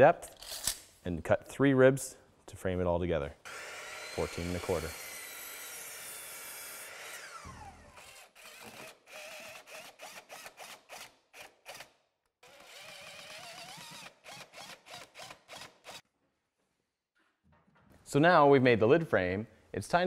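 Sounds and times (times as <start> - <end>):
impact driver hammering screw: 6.9 - 16.0.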